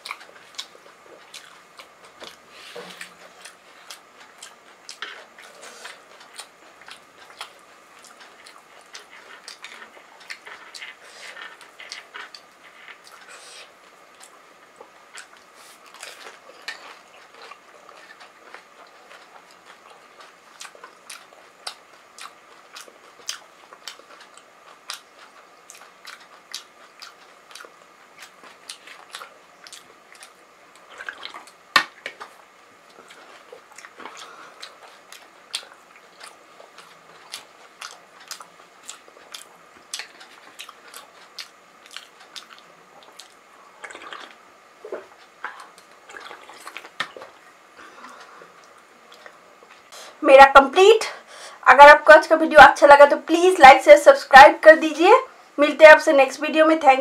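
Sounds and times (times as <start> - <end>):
chewing and crunching: 0.0 - 49.9.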